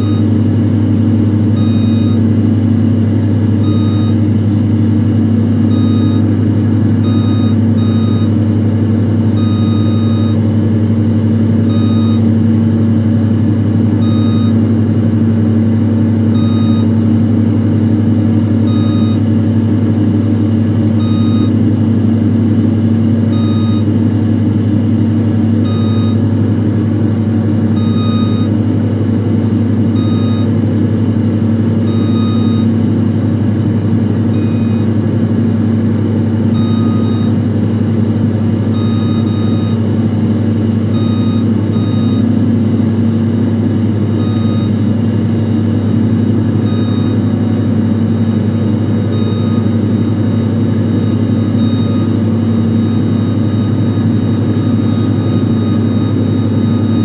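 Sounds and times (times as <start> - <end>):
short high electronic beeps: 0.0 - 0.3, 1.6 - 2.2, 3.6 - 4.2, 5.7 - 6.3, 7.1 - 8.3, 9.4 - 10.4, 11.7 - 12.2, 14.0 - 14.6, 16.4 - 16.9, 18.7 - 19.2, 21.0 - 21.5, 25.7 - 26.2, 27.8 - 28.5, 30.0 - 30.5, 31.9 - 32.7, 34.4 - 34.9, 36.6 - 37.4, 38.8 - 39.8, 41.0 - 42.4, 44.2 - 48.5, 49.1 - 50.4, 51.0 - 57.0
low machinery hum: 0.0 - 57.0.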